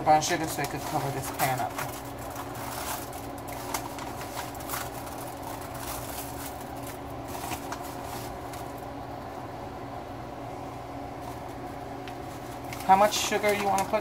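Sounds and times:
steady low hum: 0.0 - 14.0
foil pan clicks and rustles: 0.1 - 8.8, 12.6 - 14.0.

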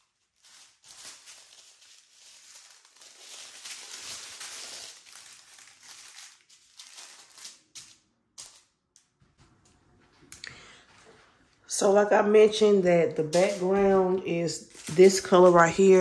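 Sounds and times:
plastic bags crinkling: 0.0 - 9.0, 12.7 - 16.0.

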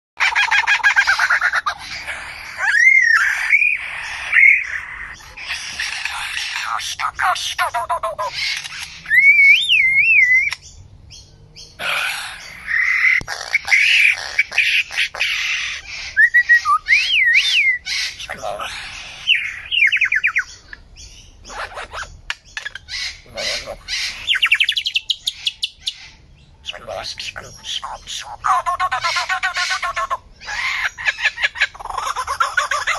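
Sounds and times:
lyrebird singing: 0.2 - 32.9.

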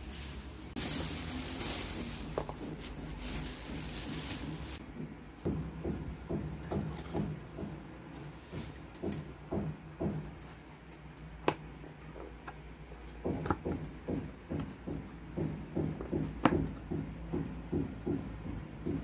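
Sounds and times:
soft rhythmic thumps: 0.8 - 7.9, 13.2 - 19.0.

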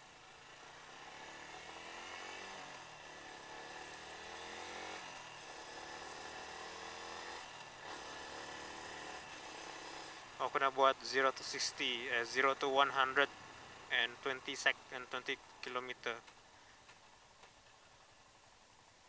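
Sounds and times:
motorcycle engine accelerating: 0.2 - 10.7.

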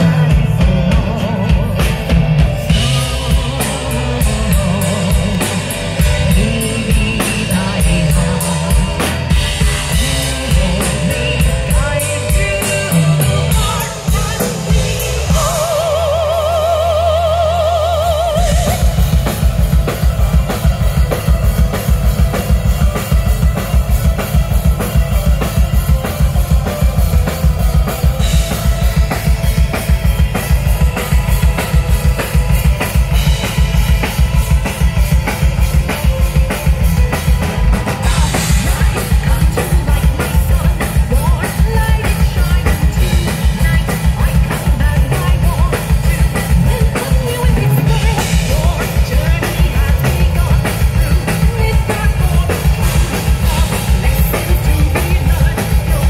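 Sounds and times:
live rock band playing: 0.0 - 56.0
bass drum and snare: 18.3 - 56.0.

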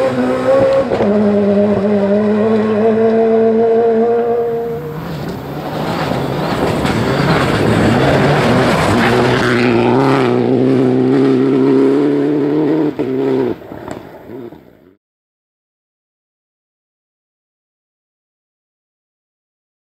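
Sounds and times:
rally car engines at full throttle: 0.0 - 15.0
loose gravel noise: 4.8 - 10.6.

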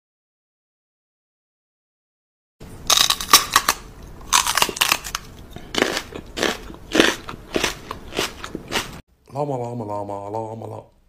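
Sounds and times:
man making crunching mouth noises: 4.3 - 9.0.

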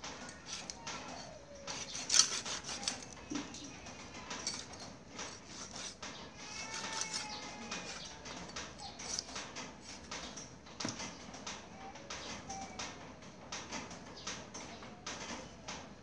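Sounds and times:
knife sawing through flesh: 0.3 - 3.2, 4.4 - 6.0, 6.6 - 8.1.

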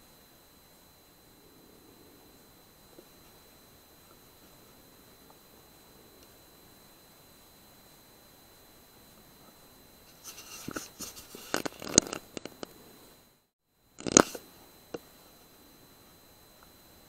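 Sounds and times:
air rifle handling rustles: 10.1 - 12.7.

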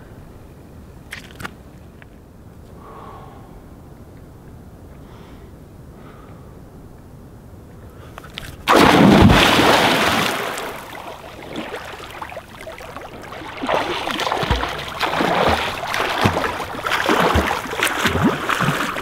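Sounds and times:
person splashing into water: 8.6 - 19.0
swimming strokes splashing: 8.7 - 19.0.

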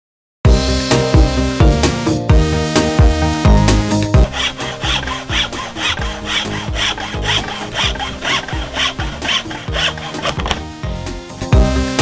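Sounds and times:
hacksaw cutting plywood: 4.0 - 10.7.

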